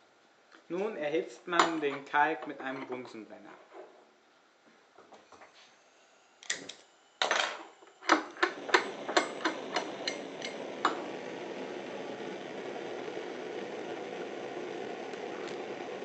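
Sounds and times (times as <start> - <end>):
burning gas hissing: 5.4 - 16.0
sharp igniter clicks: 6.4 - 7.4, 8.0 - 11.2.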